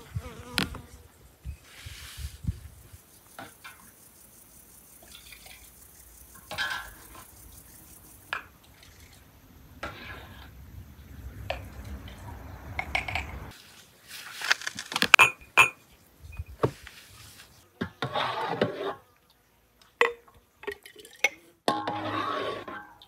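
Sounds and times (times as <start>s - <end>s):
glass jars and ladle clinking: 15.2s - 15.8s
liquid being ladled: 20.6s - 23.0s.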